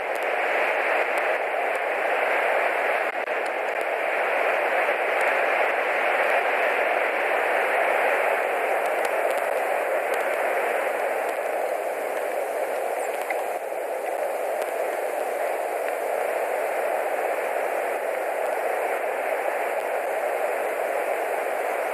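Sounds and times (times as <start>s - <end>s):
steady rushing hiss: 0.0s - 21.9s
faint ticks: 0.1s - 0.4s, 1.0s - 1.9s, 8.8s - 10.6s, 11.2s - 16.6s, 17.4s - 18.6s.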